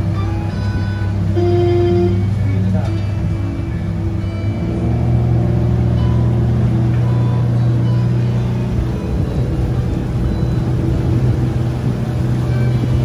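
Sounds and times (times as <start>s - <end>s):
boat engine humming: 0.0s - 13.0s
water wash: 0.0s - 13.0s
wind noise: 8.6s - 13.0s.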